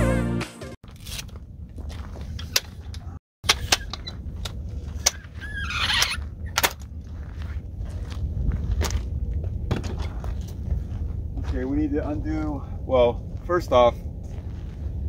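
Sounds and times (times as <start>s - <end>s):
low wind rumble: 1.0s - 15.0s.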